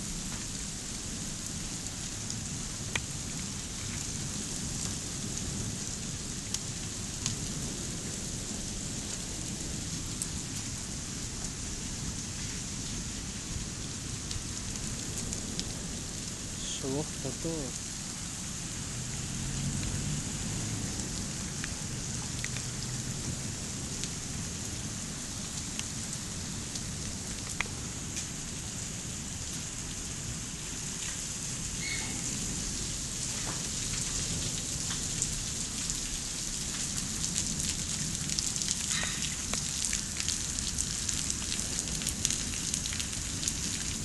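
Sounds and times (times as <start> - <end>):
hail and rain hissing: 0.0 - 44.0
hailstones clicking: 32.2 - 44.0.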